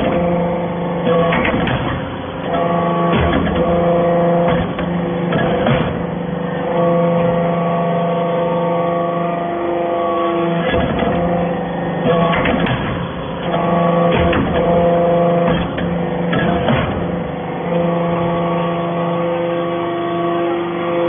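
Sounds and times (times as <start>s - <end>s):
machine hum: 0.0s - 21.0s
press ram clanking: 12.0s - 17.7s.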